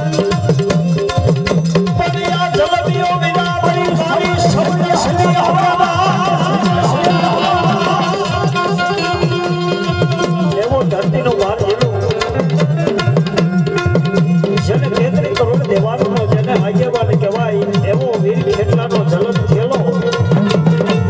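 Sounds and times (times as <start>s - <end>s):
hand drums beating: 0.0s - 21.0s
person singing: 0.0s - 21.0s
harmonium chords: 3.7s - 14.7s.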